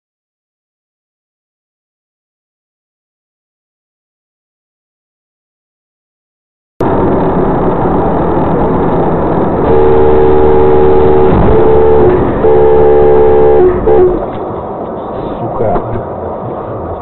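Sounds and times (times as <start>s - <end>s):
traffic and engine noise: 6.8s - 17.0s
vehicle horn blasts: 9.6s - 14.3s.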